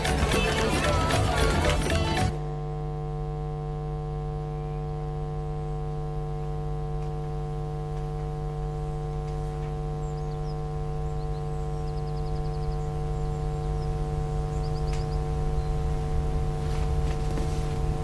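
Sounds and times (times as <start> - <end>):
ambient music drone: 4.4 - 18.0.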